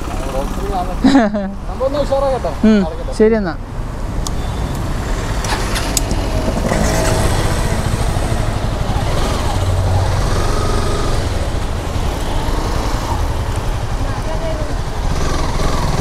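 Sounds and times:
motorcycle engine rumble: 4.9s - 16.0s.

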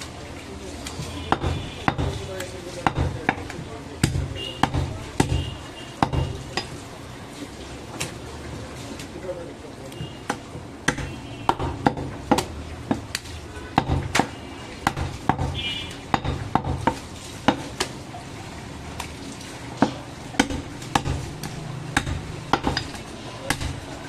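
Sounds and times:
knife chopping on wooden block: 0.9s - 6.8s, 10.3s - 17.9s, 19.8s - 23.9s.

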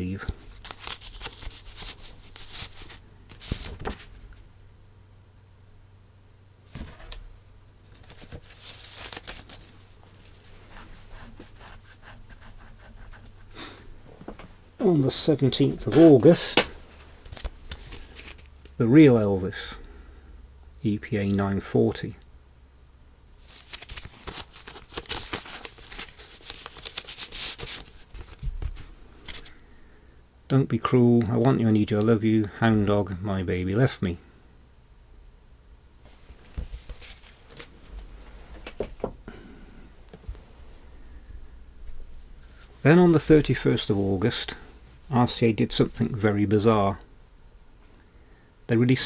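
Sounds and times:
paper record sleeves rustling: 0.0s - 4.4s, 6.7s - 19.3s, 23.4s - 29.6s, 36.0s - 39.1s
low steady hum: 0.0s - 49.0s.

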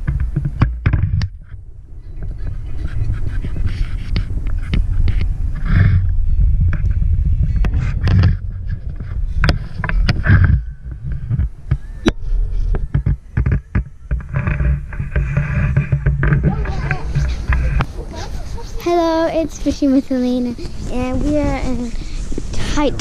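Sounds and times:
road and wind rumble: 0.0s - 23.0s
sharp knocks and clicks: 7.6s - 17.9s.

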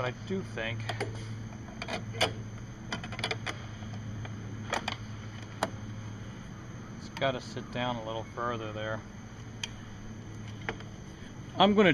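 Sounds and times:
steady low hum: 0.0s - 11.9s
sharp clicks and knocks: 0.8s - 5.8s.

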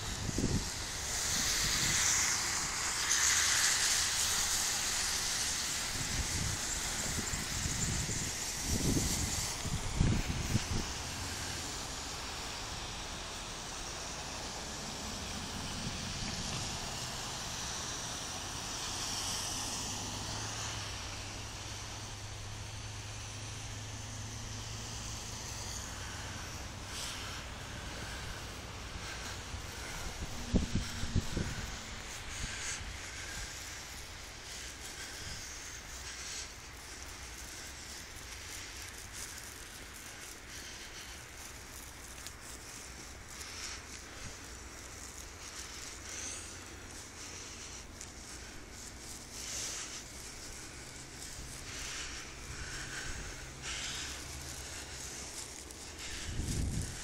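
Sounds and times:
wind on microphone: 0.0s - 2.7s, 5.8s - 11.4s, 28.0s - 35.5s, 56.0s - 57.0s
car tyres hissing on snow: 0.0s - 57.0s
light crackles: 0.0s - 57.0s
soft rustling: 26.0s - 57.0s.

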